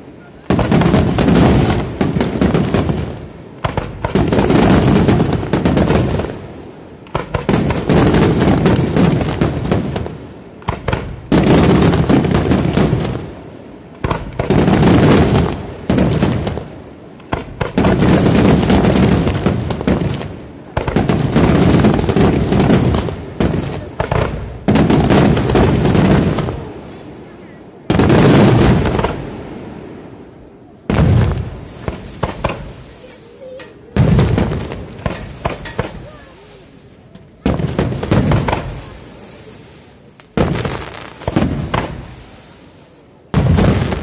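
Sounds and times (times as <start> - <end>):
fireworks shells bursting: 31.6 - 42.6.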